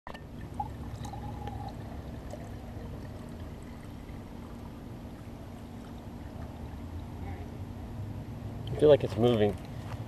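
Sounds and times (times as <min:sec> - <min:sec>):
low steady rumble: 0:00.1 - 0:10.0
water pouring and splashing: 0:00.2 - 0:06.8.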